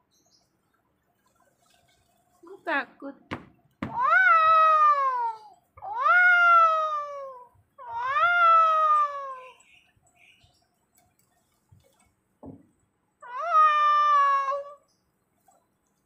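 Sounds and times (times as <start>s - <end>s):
angry cat meows: 13.2s - 14.8s.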